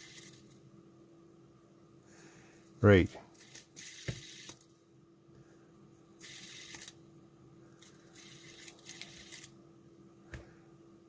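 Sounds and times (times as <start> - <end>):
fidget spinner whirring: 0.0 - 0.6, 3.3 - 4.8, 6.2 - 7.0, 7.7 - 9.6.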